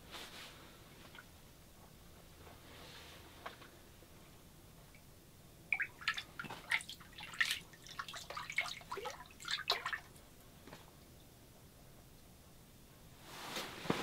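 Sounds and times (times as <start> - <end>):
water splashing and dripping: 5.7 - 10.2.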